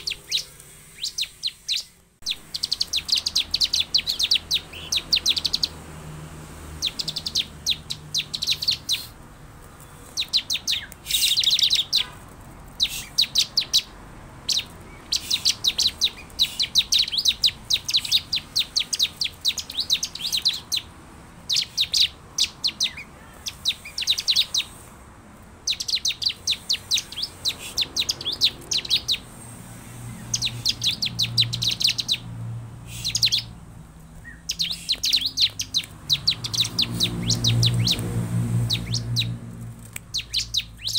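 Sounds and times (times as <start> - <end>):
bird calling high-pitched notes: 0.0 - 5.7.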